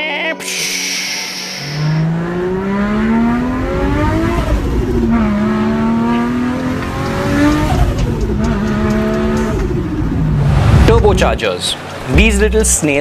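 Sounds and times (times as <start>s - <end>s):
turbocharged car engine accelerating: 1.3s - 12.7s.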